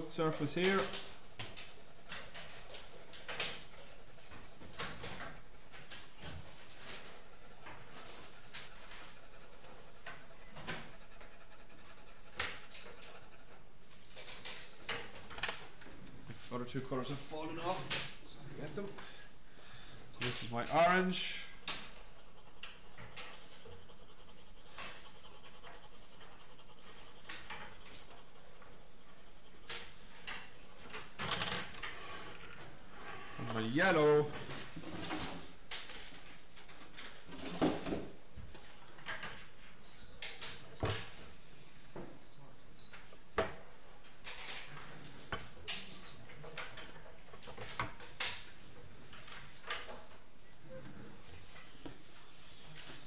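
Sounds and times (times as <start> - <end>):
pencil strokes on paper: 0.0 - 15.3, 20.2 - 31.2.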